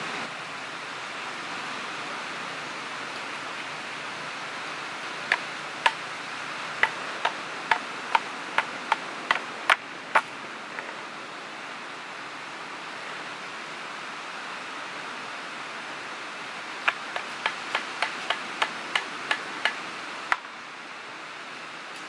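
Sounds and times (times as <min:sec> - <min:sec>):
surf hissing: 0:00.0 - 0:21.9
knife chopping wooden stick: 0:16.9 - 0:19.8.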